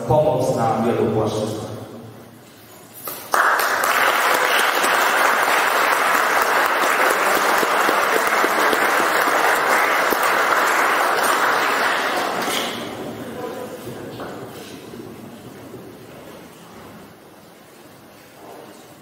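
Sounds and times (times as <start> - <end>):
audience applauding: 3.1 - 13.1.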